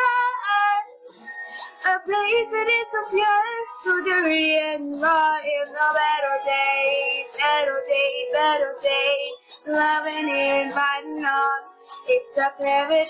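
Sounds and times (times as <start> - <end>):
young woman singing pop melody: 0.0 - 13.0.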